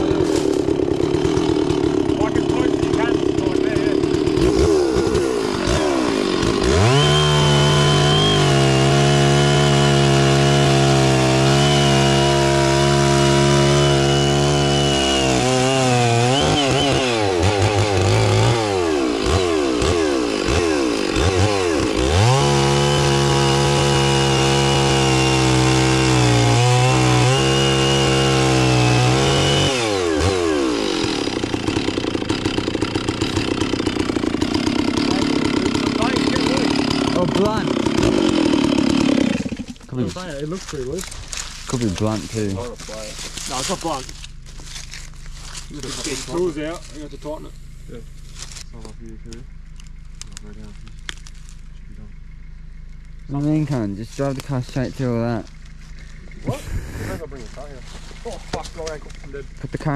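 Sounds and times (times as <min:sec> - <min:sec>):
chainsaw cutting wood: 0:00.0 - 0:48.9, 0:49.5 - 0:51.7, 0:52.7 - 0:59.9
chainsaw idling: 0:00.0 - 0:59.9.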